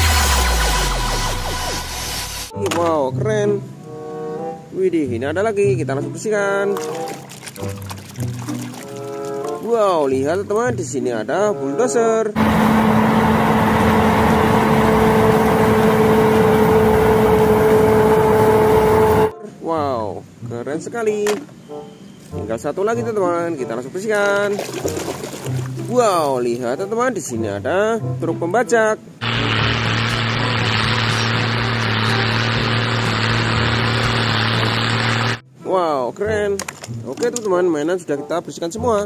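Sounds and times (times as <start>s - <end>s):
bulldozer diesel engine droning: 0.0s - 2.5s, 12.4s - 19.3s, 29.2s - 35.4s.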